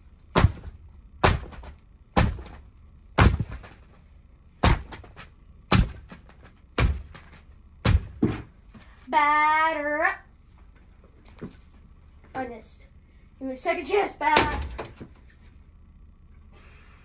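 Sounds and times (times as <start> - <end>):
heavy thuds: 0.3 - 4.0, 4.6 - 8.9.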